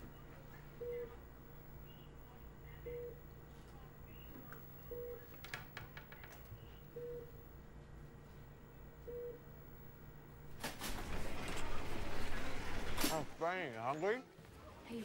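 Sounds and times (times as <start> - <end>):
low steady hum: 0.0 - 15.0
patient monitor beeping: 0.7 - 7.7, 8.5 - 10.5.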